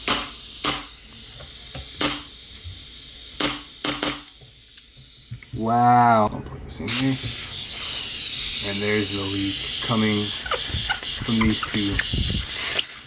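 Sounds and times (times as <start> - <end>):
compressed air hissing: 6.9 - 13.0.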